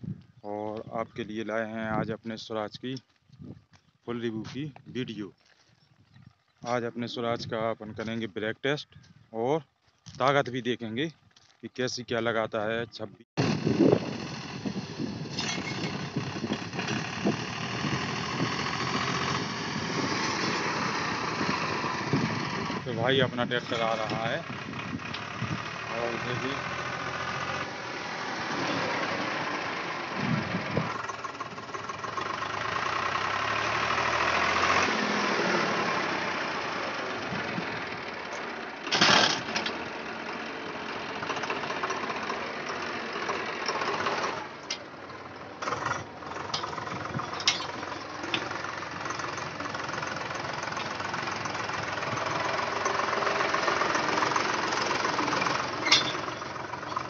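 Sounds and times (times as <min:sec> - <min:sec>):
tractor diesel engine running: 0:13.4 - 0:57.0.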